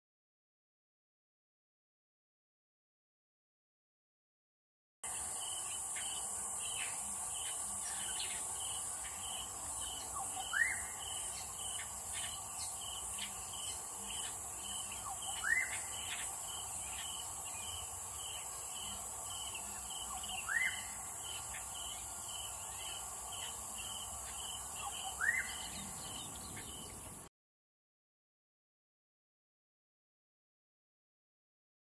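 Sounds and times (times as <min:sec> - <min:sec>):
high insect hiss: 0:05.0 - 0:27.3.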